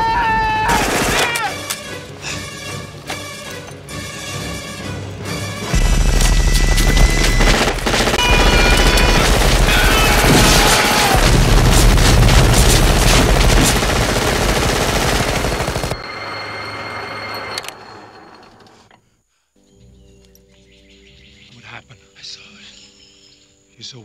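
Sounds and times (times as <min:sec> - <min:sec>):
dramatic film music: 0:00.2 - 0:17.8
automatic gunfire: 0:07.1 - 0:16.0
thin high tone: 0:16.0 - 0:18.8.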